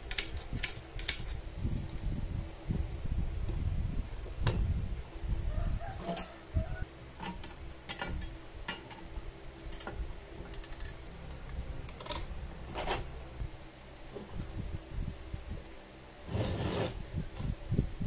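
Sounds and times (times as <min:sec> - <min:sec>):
metal parts clinking and knocking: 0:09.6 - 0:11.0, 0:11.9 - 0:13.1.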